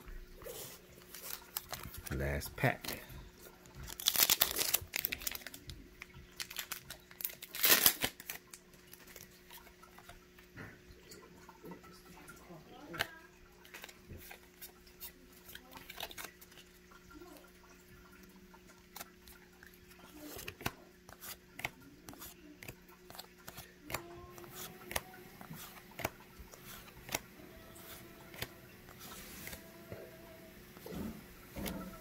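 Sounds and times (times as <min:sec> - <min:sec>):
cards being flipped: 0:00.5 - 0:03.0, 0:03.8 - 0:05.7, 0:06.4 - 0:09.6, 0:20.0 - 0:30.0.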